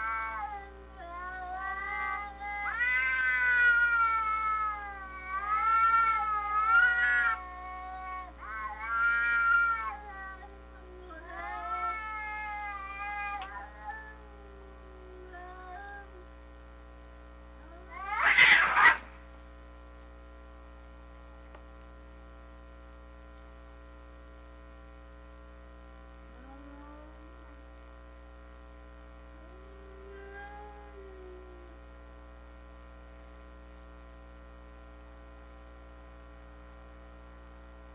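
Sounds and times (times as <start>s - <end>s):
cats caterwauling: 0.0s - 16.2s, 17.7s - 19.1s, 29.5s - 31.7s
electrical hum: 0.0s - 37.9s.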